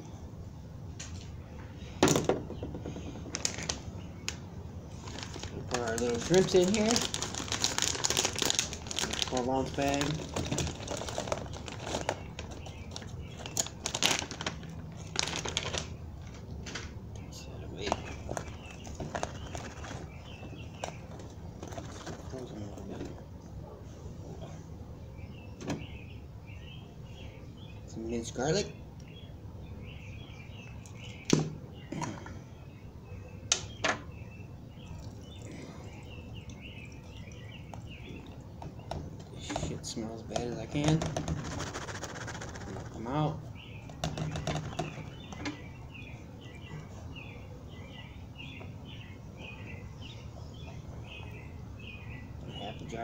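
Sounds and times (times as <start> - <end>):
plastic bag crinkling: 3.2 - 3.9, 4.9 - 16.8.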